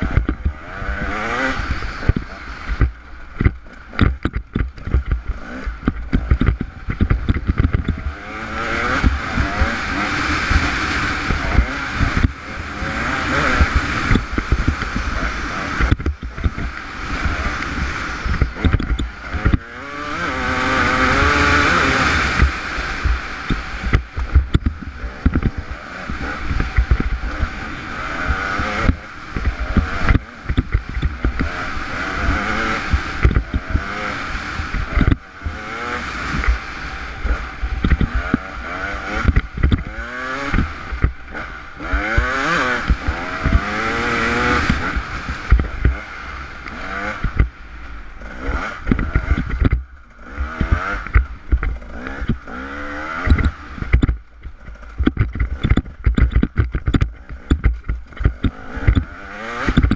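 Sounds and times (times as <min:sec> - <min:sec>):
motorcycle engine revving: 0:00.0 - 0:59.9
knocks and clatters from bumpy ground: 0:02.1 - 0:08.2, 0:48.9 - 0:59.9.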